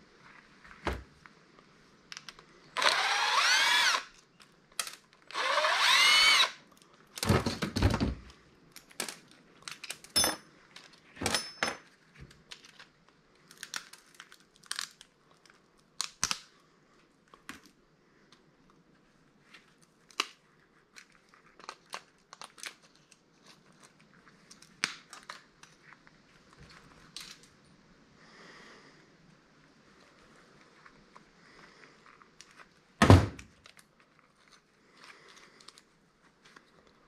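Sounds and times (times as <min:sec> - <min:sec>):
cordless drill whining: 0:02.8 - 0:04.1, 0:05.3 - 0:06.6
small parts clicking and clattering: 0:03.9 - 0:16.5, 0:26.6 - 0:27.6.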